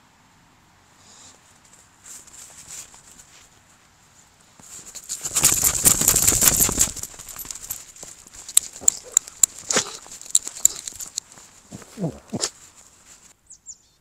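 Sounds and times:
footsteps crunching in snow: 4.4s - 13.4s
dog snuffling and snorting: 4.8s - 13.3s.

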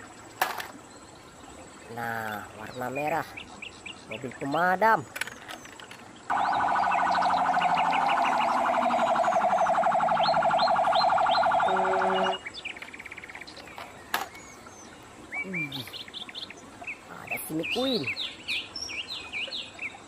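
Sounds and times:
birds chirping: 0.0s - 20.0s
fire truck siren pulsing: 6.3s - 12.4s
low horn note: 11.6s - 12.4s.

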